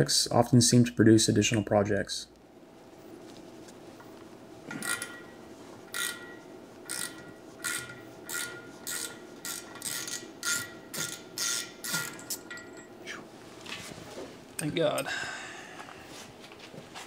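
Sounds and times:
hand tool strokes with ringing: 0:04.8 - 0:13.2.

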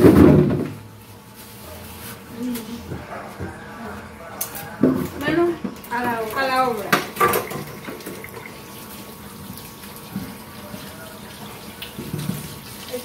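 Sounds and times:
faucet water running into sink: 0:05.9 - 0:13.0.

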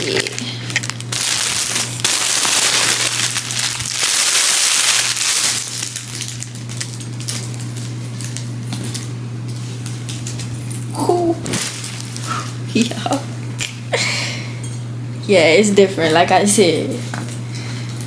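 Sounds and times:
plastic bag crinkling: 0:00.0 - 0:10.6, 0:11.4 - 0:12.6
steady low hum: 0:00.0 - 0:18.0.

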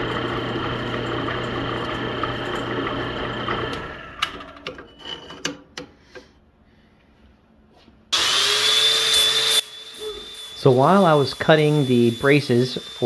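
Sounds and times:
electric drill boring steel: 0:00.0 - 0:04.4, 0:08.2 - 0:13.0
power tool whirring: 0:00.0 - 0:04.4, 0:08.1 - 0:13.0.

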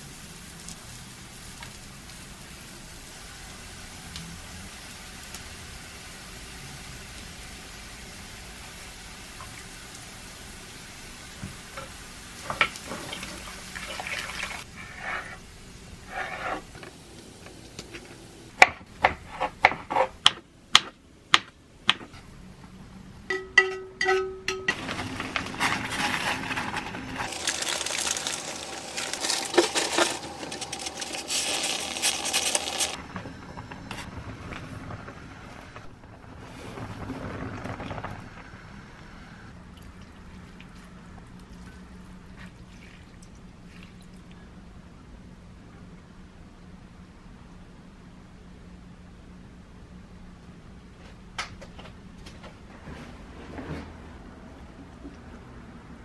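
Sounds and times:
loud steady hiss: 0:00.0 - 0:12.6, 0:16.7 - 0:18.6.

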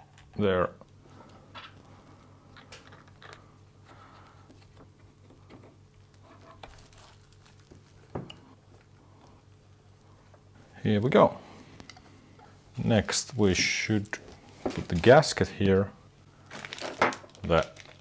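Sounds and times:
low steady hum: 0:00.0 - 0:18.0
plastic bags crinkling: 0:06.0 - 0:08.2, 0:13.6 - 0:15.4, 0:16.4 - 0:18.0.

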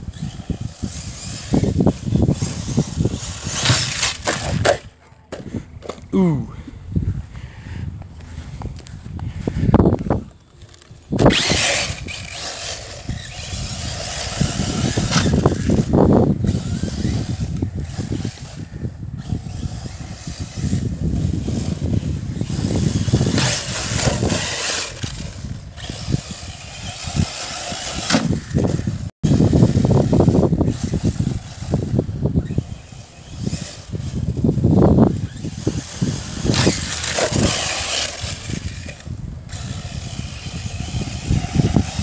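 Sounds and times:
electric rc car motor whine: 0:00.0 - 0:04.9, 0:09.4 - 0:42.0.

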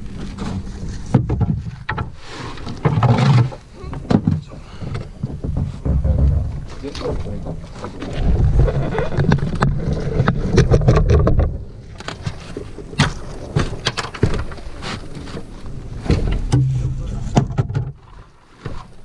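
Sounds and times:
low rumble: 0:15.6 - 0:17.6.

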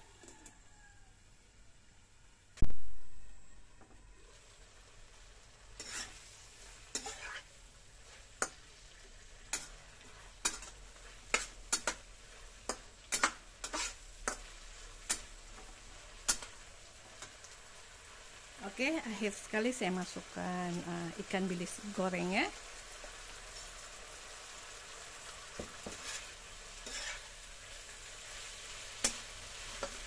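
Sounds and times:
faint sizzle: 0:00.0 - 0:30.0
spatula scraping a wok: 0:05.4 - 0:19.4, 0:21.2 - 0:30.0.

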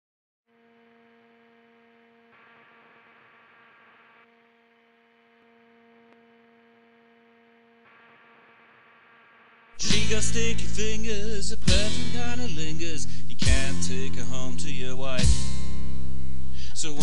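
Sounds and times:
faint steady hum: 0:00.5 - 0:13.4.

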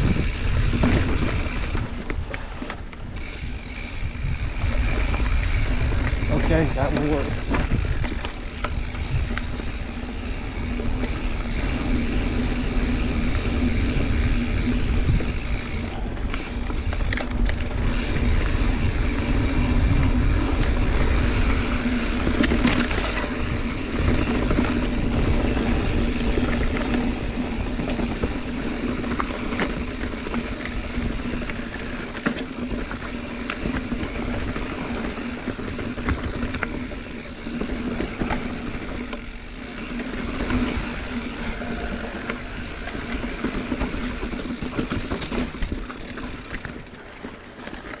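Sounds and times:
wind rushing over microphone: 0:00.0 - 0:32.2
bike tires rolling on dirt: 0:00.0 - 0:48.0
small rattles and clicks: 0:00.0 - 0:48.0.

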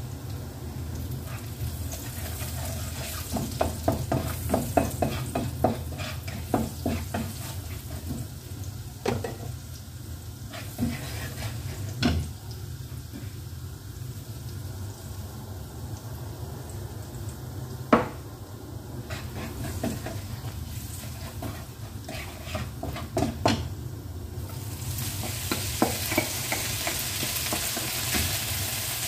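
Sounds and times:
food sizzling in oil: 0:00.0 - 0:29.0
spatula knocking and scraping wok: 0:02.0 - 0:08.4, 0:09.0 - 0:09.6, 0:10.5 - 0:12.3, 0:17.9 - 0:18.2, 0:19.0 - 0:23.8, 0:25.0 - 0:28.8.

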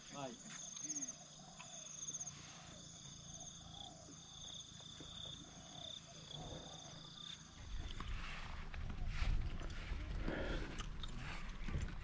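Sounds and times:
insects trilling: 0:00.0 - 0:07.8.

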